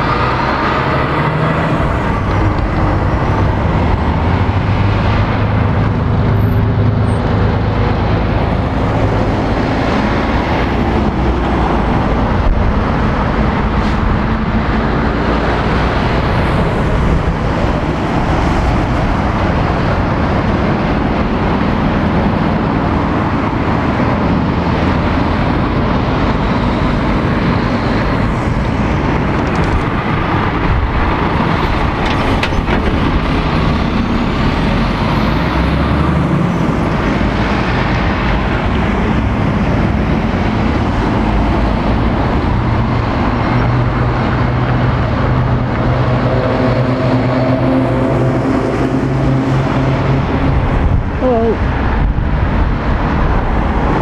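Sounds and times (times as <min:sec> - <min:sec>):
diesel lorries driving past: 0:00.0 - 0:54.0
road traffic noise: 0:00.0 - 0:54.0.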